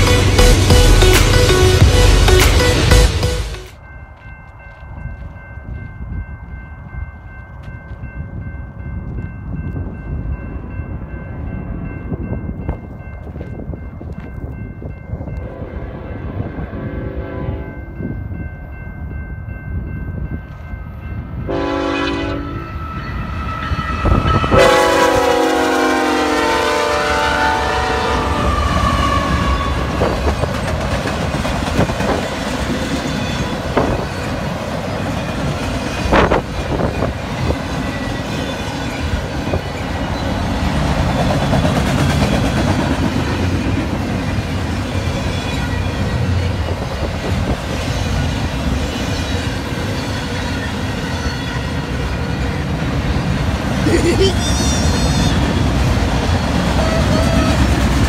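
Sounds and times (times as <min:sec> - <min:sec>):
locomotive horn blasts: 0:15.4 - 0:17.8, 0:21.5 - 0:22.8, 0:23.9 - 0:30.2
train wheels rumbling and clattering: 0:28.4 - 0:53.8, 0:54.5 - 0:58.0.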